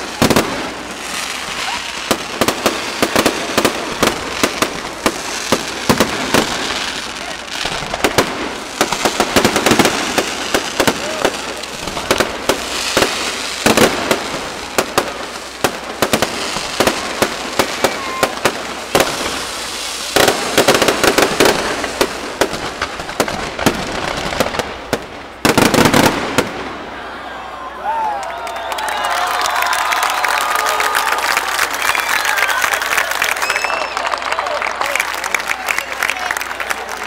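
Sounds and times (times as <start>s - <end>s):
fireworks bangs and crackles: 0.0s - 27.2s.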